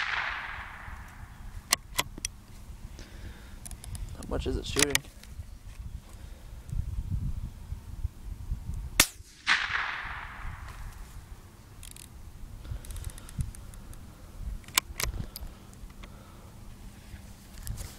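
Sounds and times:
rifle shot: 0.0 - 1.2, 9.0 - 10.9
sharp clicks: 4.7 - 5.1.

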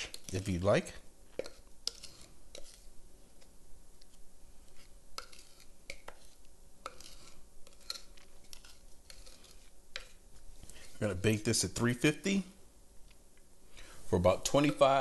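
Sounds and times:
spatula scraping batter in bowl: 0.0 - 0.7, 1.3 - 3.5, 4.6 - 11.3, 14.5 - 15.0.

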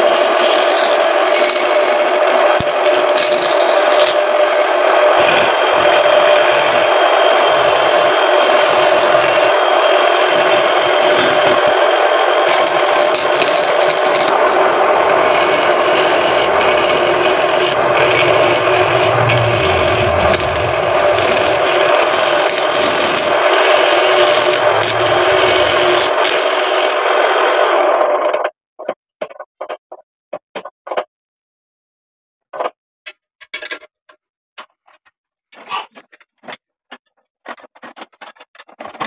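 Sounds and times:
chisel scraping wood on lathe: 0.0 - 11.8, 12.4 - 27.0.

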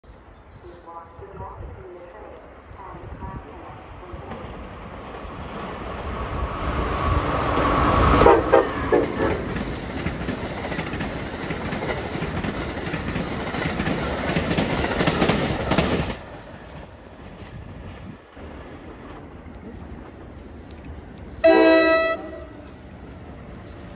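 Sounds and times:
train passing at speed: 0.6 - 23.9
wheels clattering on rail: 7.5 - 22.8.

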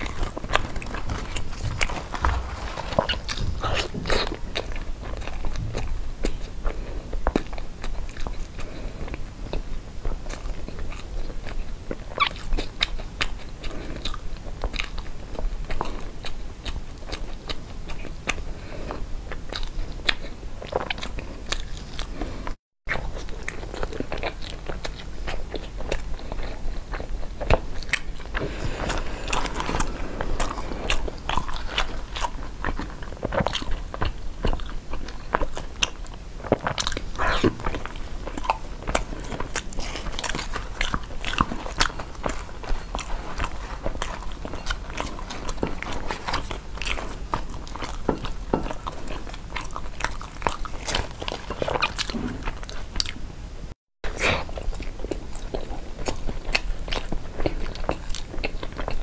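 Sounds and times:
leaf wrappers rustling: 0.0 - 3.8
person chewing food: 0.0 - 53.3, 54.1 - 59.0.

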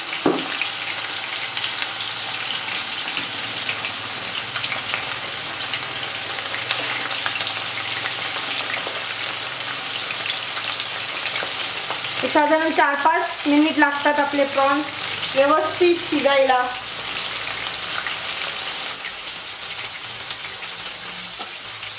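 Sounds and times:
deep-frying sizzle and crackles: 0.0 - 21.9.

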